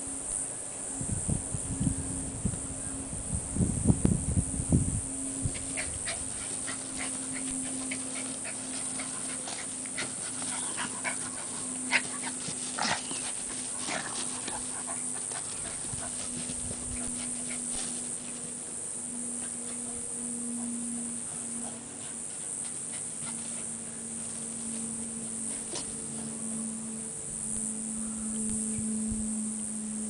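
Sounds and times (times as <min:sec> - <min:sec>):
dogs' sharp play sounds: 0:05.5 - 0:18.7, 0:20.6 - 0:26.5
dog panting: 0:05.6 - 0:18.4, 0:21.4 - 0:23.8.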